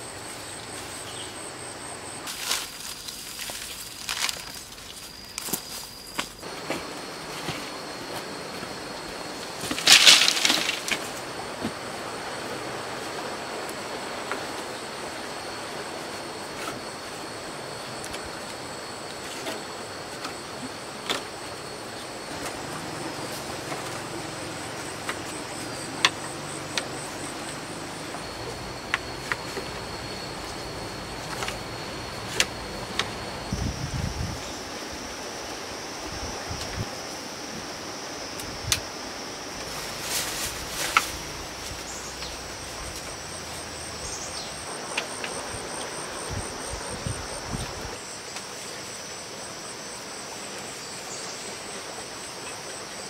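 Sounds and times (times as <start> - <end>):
high insect drone: 0.0 - 53.0
leafy poles clattering down: 2.3 - 7.7, 9.5 - 11.3, 39.6 - 43.7.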